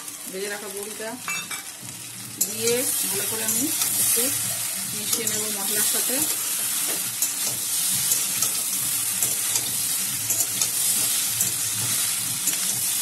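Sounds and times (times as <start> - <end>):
vegetables sizzling in a pan: 0.0 - 13.0
spatula scraping and tapping pan: 6.2 - 13.0.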